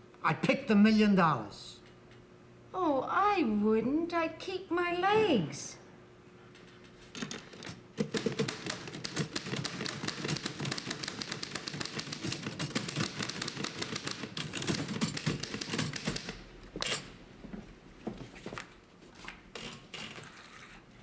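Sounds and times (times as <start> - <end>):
typewriter keystrokes clattering: 7.2 - 16.4.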